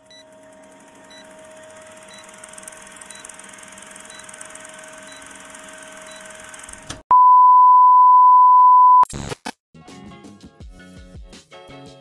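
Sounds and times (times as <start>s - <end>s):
fast mechanical clatter: 0.3s - 7.0s
short high beep: 7.1s - 9.0s.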